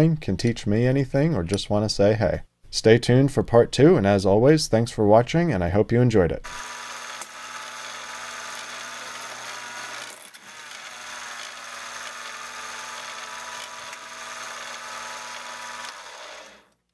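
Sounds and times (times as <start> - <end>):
drill bit drilling into aluminum: 6.5 - 16.8
metal lathe motor whine: 6.6 - 16.7.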